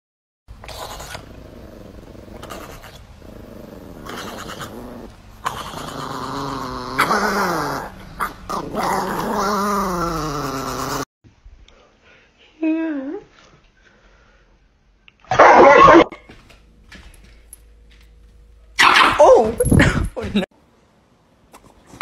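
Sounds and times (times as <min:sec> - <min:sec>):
dog growling: 0:00.6 - 0:11.1.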